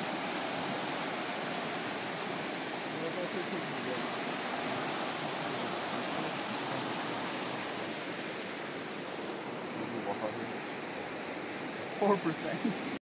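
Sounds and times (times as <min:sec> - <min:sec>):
river rushing over rocks: 0:00.0 - 0:13.0.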